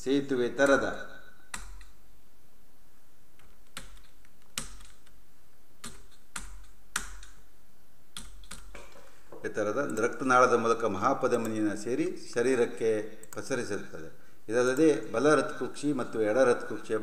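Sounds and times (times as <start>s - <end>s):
computer keyboard keystrokes: 3.4s - 5.1s, 8.2s - 8.8s.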